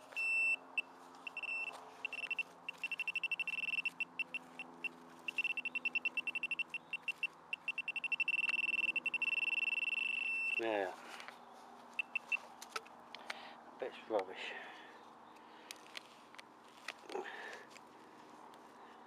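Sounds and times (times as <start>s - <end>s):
metal detector probe beeping: 0.0s - 10.7s, 12.0s - 12.5s.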